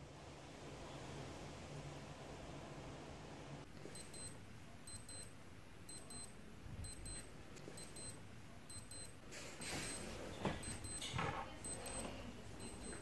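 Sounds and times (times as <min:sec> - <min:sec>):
watch alarm double beeps: 0:03.9 - 0:05.3, 0:05.9 - 0:13.0.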